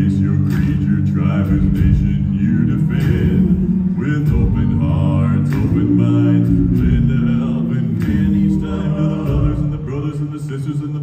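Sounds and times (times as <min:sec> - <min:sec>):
deep bass voice: 0:00.0 - 0:11.0
male a cappella group singing: 0:00.0 - 0:11.0
vocal percussion clicks: 0:05.4 - 0:09.7.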